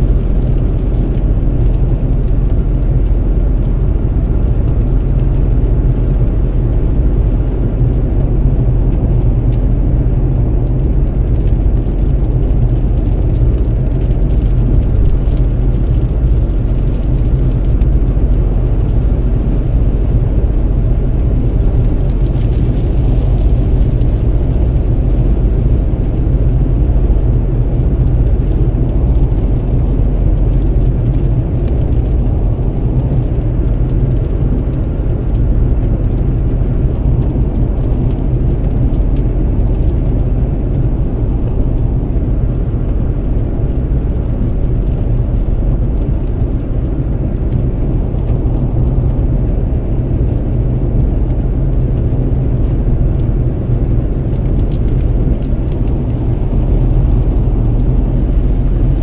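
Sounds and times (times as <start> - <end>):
car tyres and engine rumble: 0.0 - 59.0.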